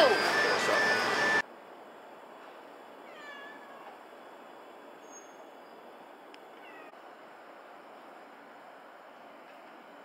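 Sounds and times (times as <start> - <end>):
cat meowing: 3.1 - 4.0, 6.6 - 6.9.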